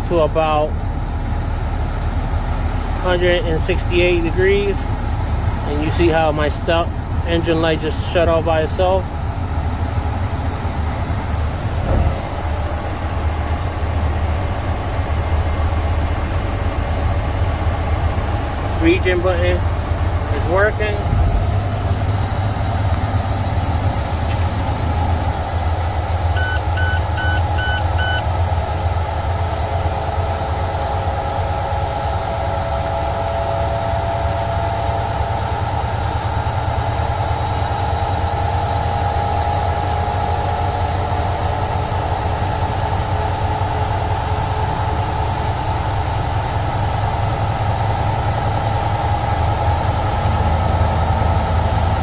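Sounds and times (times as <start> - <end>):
diesel truck engine idling: 0.0 - 52.0
short electronic beeps: 26.4 - 28.3.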